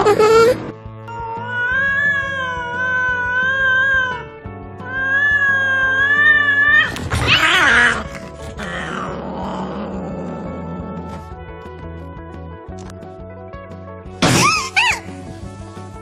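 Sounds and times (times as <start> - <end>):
cats yowling: 1.1 - 11.2
cats screeching and hissing: 1.1 - 11.3, 14.2 - 15.2.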